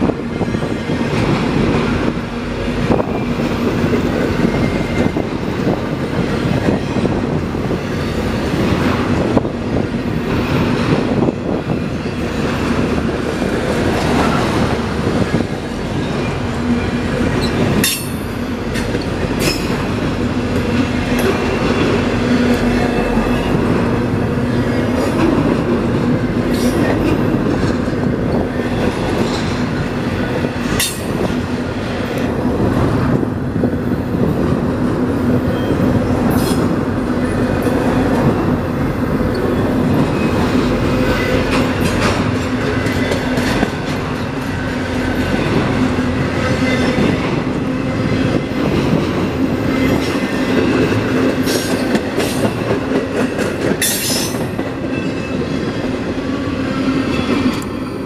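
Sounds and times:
train wheels rumbling on rails: 0.0s - 58.0s
clacks over rail joints: 13.7s - 32.4s, 39.2s - 47.7s, 48.3s - 55.7s.

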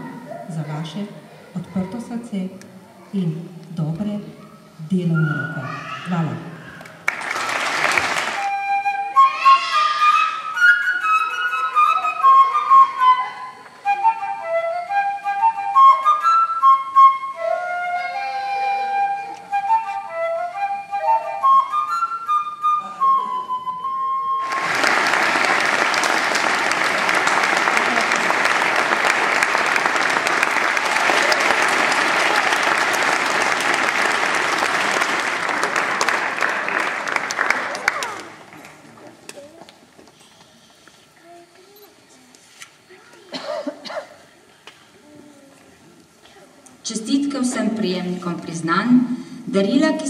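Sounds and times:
audience applause: 6.8s - 8.5s, 24.4s - 39.2s
solo flute melody: 8.4s - 24.6s.

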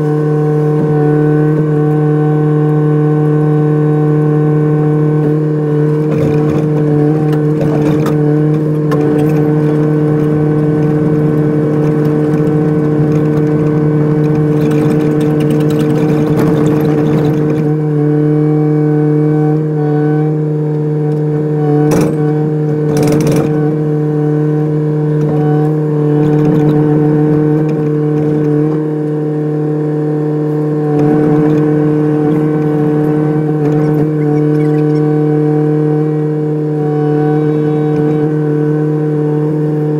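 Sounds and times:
excavator diesel engine running: 0.0s - 39.9s
rattling: 6.0s - 17.7s.

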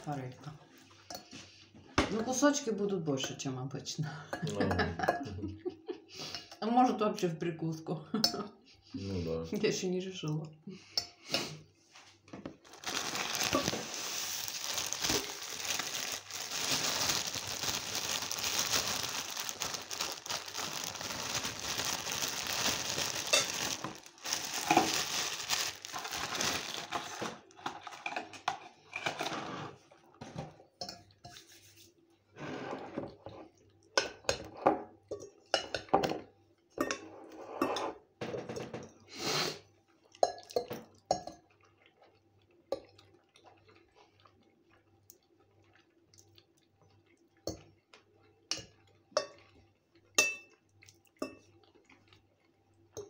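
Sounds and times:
crinkling rustling: 12.6s - 28.1s
fork scraping ceramic plate: 36.9s - 38.0s.

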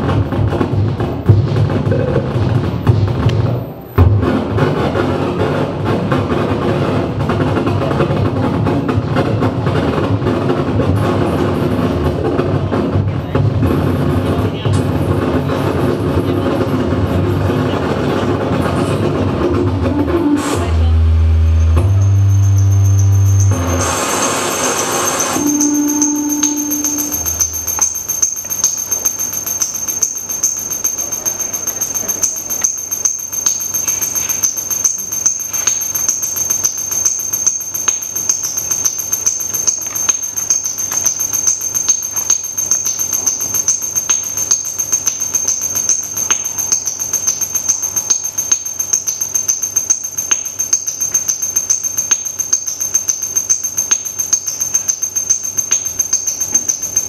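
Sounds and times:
steady high whine: 13.4s - 57.0s
low hum: 13.6s - 53.0s
middle tone: 17.4s - 57.0s.

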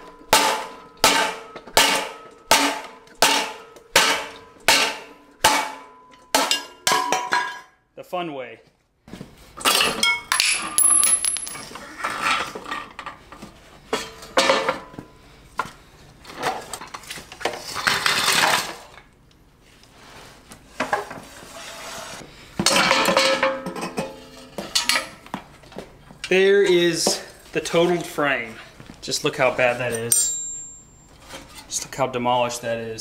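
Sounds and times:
sharp ringing metal knocks: 30.1s - 31.1s.

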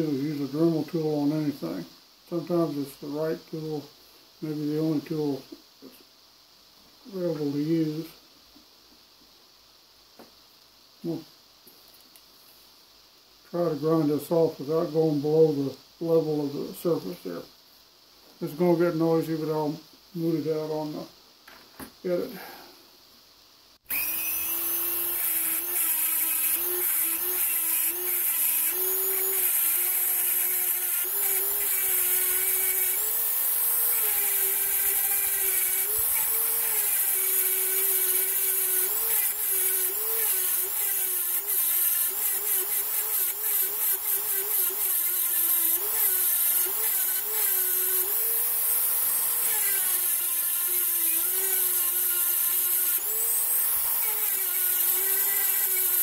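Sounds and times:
rotary tool grinding metal: 23.9s - 56.0s.

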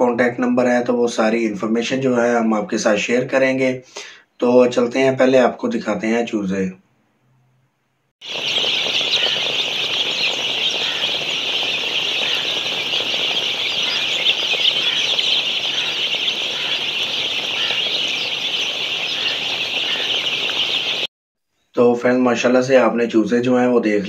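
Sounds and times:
chicks peeping: 8.2s - 21.1s.

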